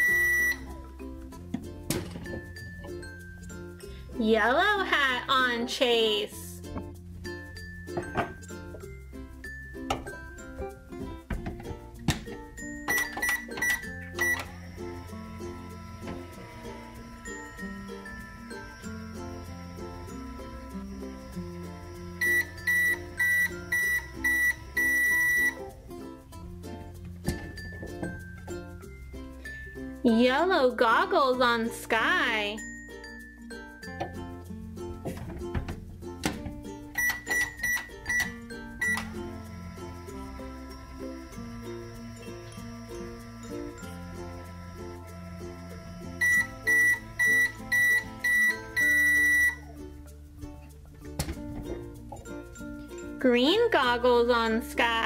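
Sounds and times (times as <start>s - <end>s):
toy microwave timer beeping: 0.0s - 0.7s, 12.8s - 25.7s, 37.0s - 49.8s
background music: 0.0s - 55.0s.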